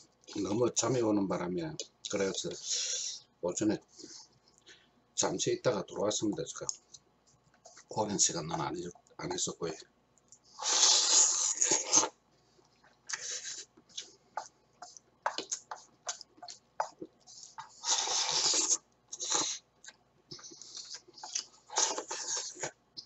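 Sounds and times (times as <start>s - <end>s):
chewing: 12.7s - 22.8s
noodle slurping: 17.3s - 19.6s.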